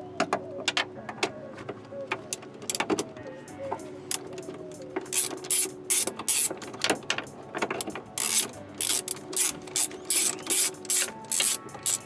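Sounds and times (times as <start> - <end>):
socket ratchet clicking: 4.1 - 12.0.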